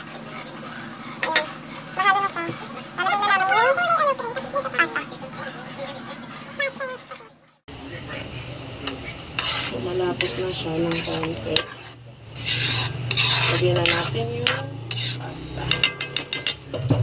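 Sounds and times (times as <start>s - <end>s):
metal spoon scraping wok: 8.8s - 17.0s.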